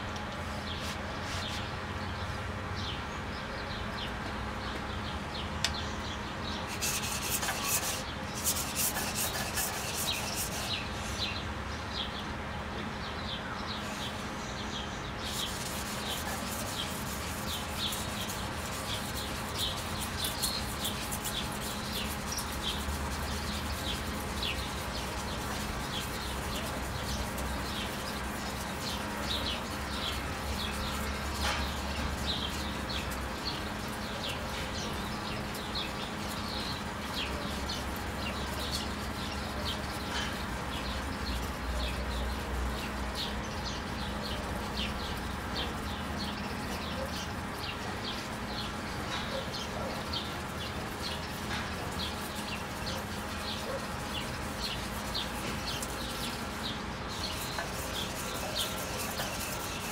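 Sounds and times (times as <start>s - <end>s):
steady low hum: 0.0s - 46.8s
birds chirping: 0.0s - 59.9s.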